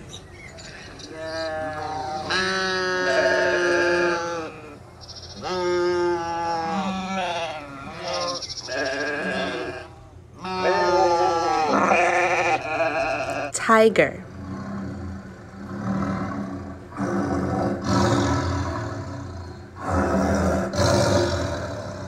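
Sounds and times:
sheep bleating: 1.2s - 4.8s, 5.4s - 13.5s.

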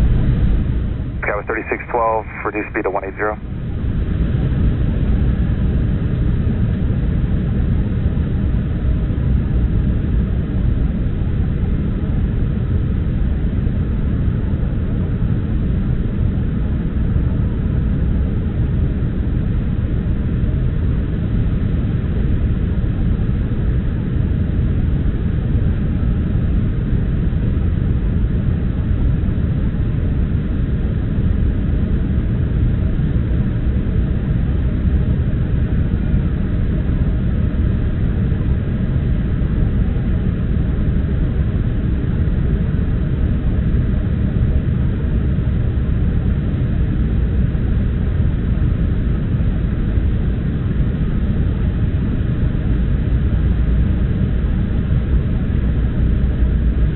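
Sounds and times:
airliner cabin rumble: 1.2s - 3.4s.

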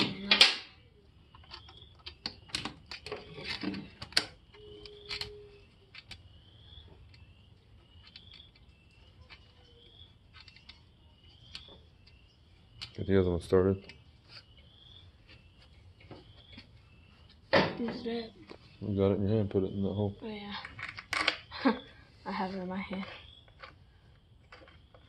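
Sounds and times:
faint high chirp: 0.1s - 20.5s
metal parts clicking and tapping: 1.3s - 13.1s.

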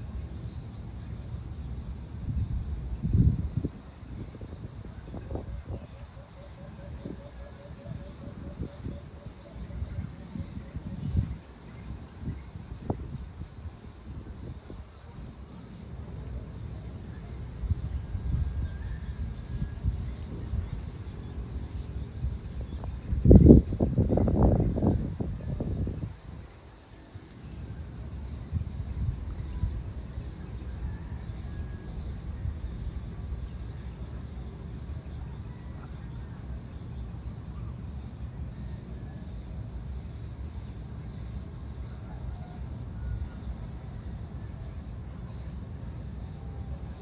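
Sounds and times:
high-pitched insect drone: 0.0s - 42.1s
wind buffeting microphone: 2.2s - 6.1s, 7.9s - 14.9s, 21.7s - 26.6s.

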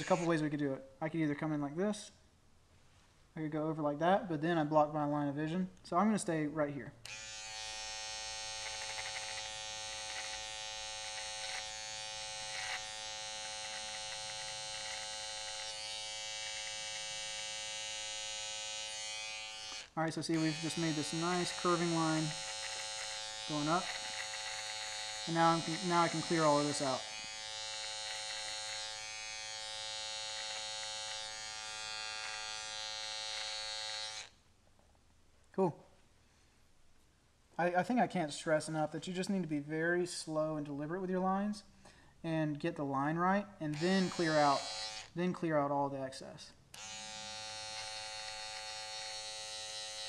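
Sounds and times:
hair trimmer buzzing: 0.0s - 0.4s, 7.0s - 34.4s, 43.7s - 45.2s, 46.7s - 50.0s
trimmer crackling through hair: 0.0s - 0.4s, 7.0s - 34.4s, 43.7s - 45.2s, 46.7s - 50.0s.

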